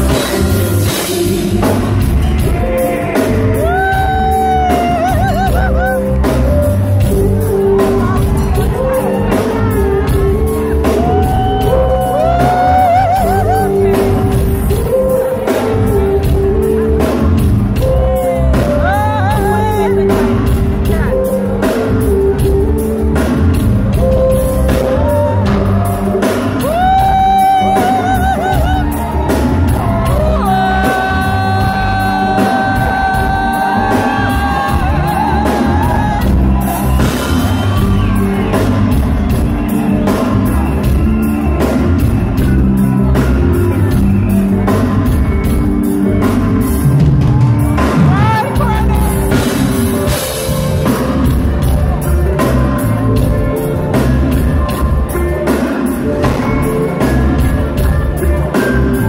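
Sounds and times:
person singing: 0.0s - 37.4s
live reggae band: 0.0s - 59.0s.

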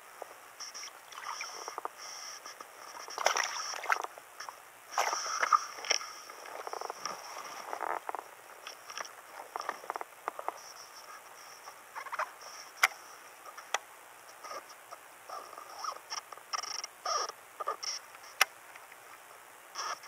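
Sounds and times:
water splashes and drips: 3.2s - 4.1s.

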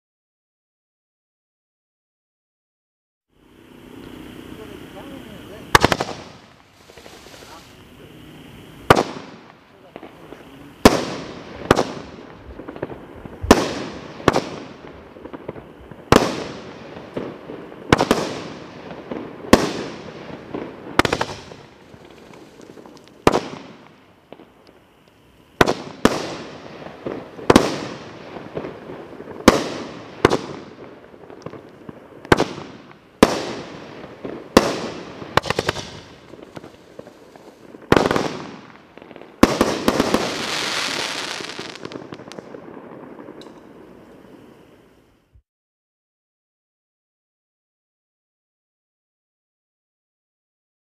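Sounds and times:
fireworks bangs with echo: 4.6s - 8.1s, 8.7s - 24.6s, 25.6s - 44.4s.

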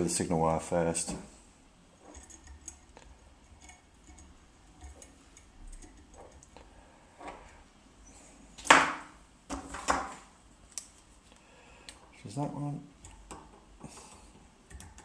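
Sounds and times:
small clicks and rustles of wire: 2.0s - 7.6s, 10.7s - 15.0s.

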